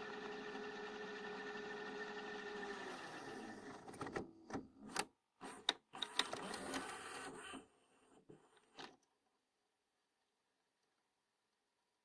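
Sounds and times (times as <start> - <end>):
mechanical clicks and clunks: 3.7 - 7.1.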